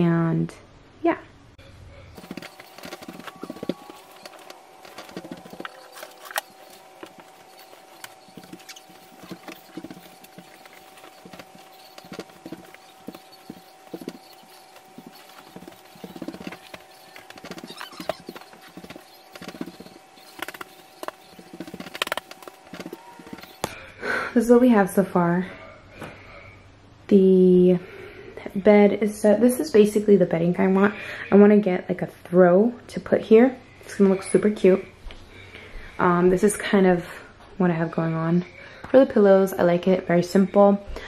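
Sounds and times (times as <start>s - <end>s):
bedding rustling and thumping: 2.2s - 23.7s
footsteps on floor: 2.2s - 23.7s.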